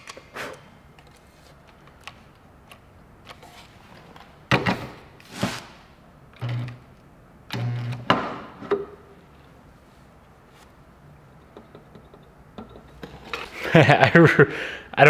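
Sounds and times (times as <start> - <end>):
electrical welding buzz: 6.4 - 6.9, 7.5 - 8.1.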